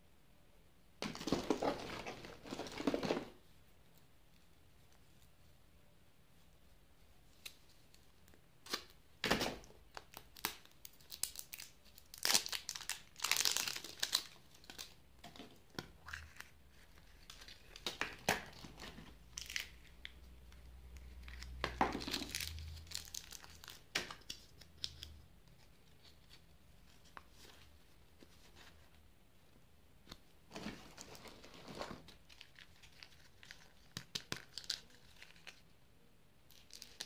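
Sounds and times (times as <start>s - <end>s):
plastic wrap tearing and crinkling: 10.1s - 15.0s, 21.3s - 25.1s, 36.5s - 37.0s.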